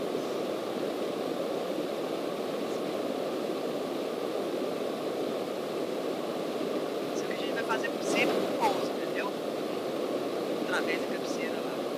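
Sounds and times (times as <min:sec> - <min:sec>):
rushing air: 0:00.0 - 0:10.9.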